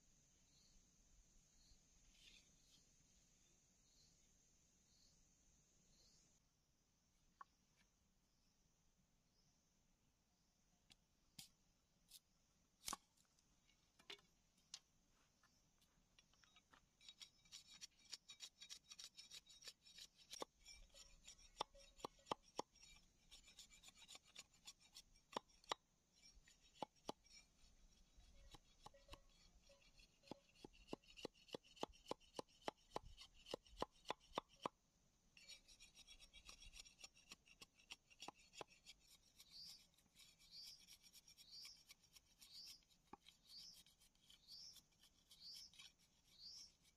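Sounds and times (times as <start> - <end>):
blade scraping: 35.4 - 46.9.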